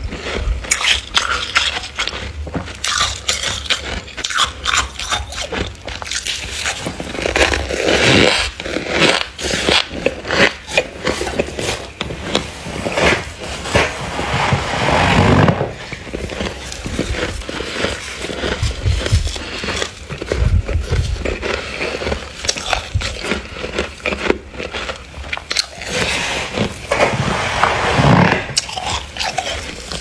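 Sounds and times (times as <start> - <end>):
frost being scraped by hand: 6.4 - 23.0.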